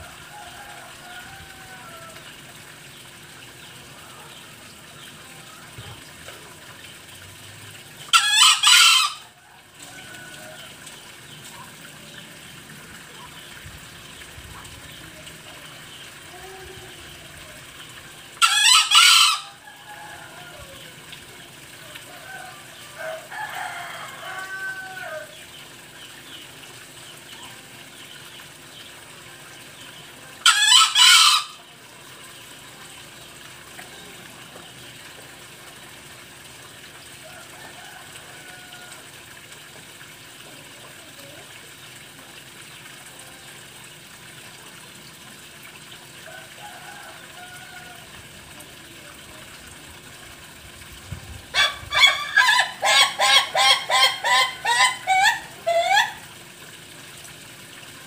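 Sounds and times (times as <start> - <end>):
junglefowl harsh crow: 0.0 - 2.4, 8.1 - 10.8, 18.4 - 21.0, 21.8 - 25.4, 30.4 - 31.7, 46.2 - 48.1, 51.5 - 56.3
junglefowl clucking calls: 8.0 - 11.8, 18.2 - 26.5, 30.4 - 32.6, 51.5 - 56.5.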